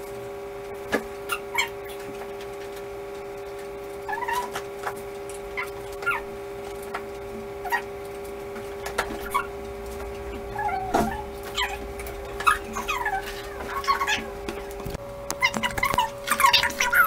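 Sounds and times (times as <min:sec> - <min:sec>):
steady hum: 0:00.0 - 0:17.0
cat chirping and mewing: 0:10.4 - 0:11.8, 0:12.4 - 0:14.3.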